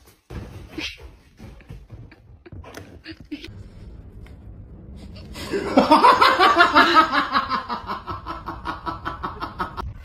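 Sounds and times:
person laughing hard: 5.4s - 9.8s.

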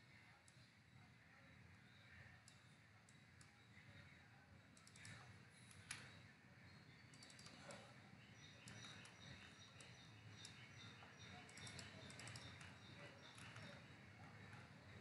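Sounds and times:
keyboard and mouse clicks: 4.8s - 6.1s, 7.1s - 7.8s, 8.6s - 13.9s.

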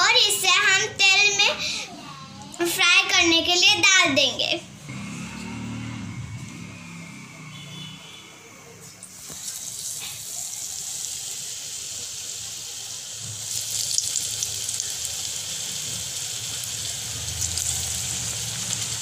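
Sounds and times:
potato slices frying in oil: 8.9s - 19.0s.

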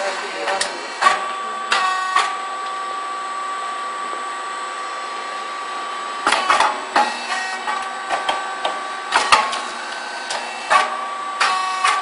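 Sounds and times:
machine whine: 0.0s - 12.0s
sharp machine clacks: 9.1s - 12.0s.

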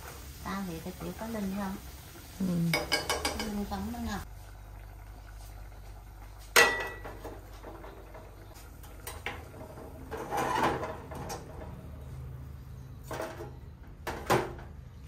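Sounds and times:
metal pot clanking on stove grate: 2.7s - 3.7s, 6.6s - 8.0s, 8.9s - 11.7s
pot handling clatter: 6.6s - 11.7s.

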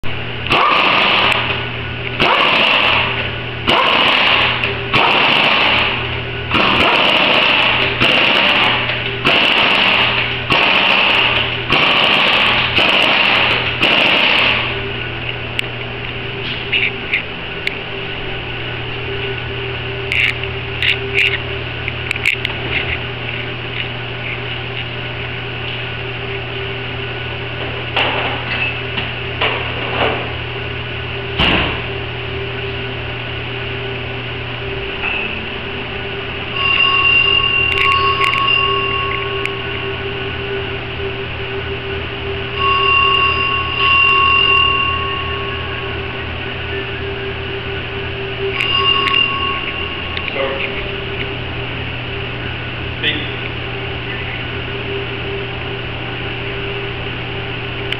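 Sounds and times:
high-pitched whine: 0.0s - 57.9s
steady low hum: 0.0s - 57.9s
pneumatic impact wrench: 0.5s - 1.6s, 2.2s - 14.7s.

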